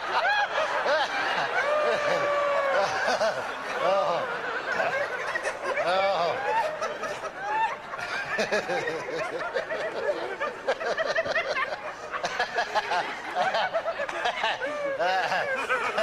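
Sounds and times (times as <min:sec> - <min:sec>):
crowd laughing and calling out: 0:00.0 - 0:16.0.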